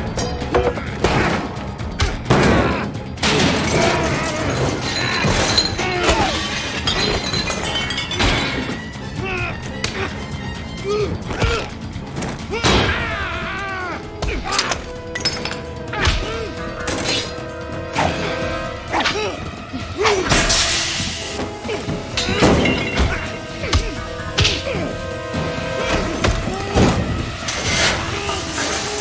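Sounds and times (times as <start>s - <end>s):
action music: 0.0s - 29.0s
things smashing and shattering: 2.3s - 9.0s, 20.3s - 24.0s, 25.4s - 29.0s.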